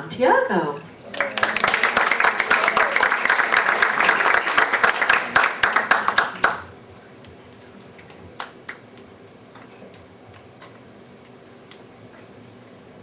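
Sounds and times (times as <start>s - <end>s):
applause: 1.1s - 6.7s, 8.4s - 8.8s.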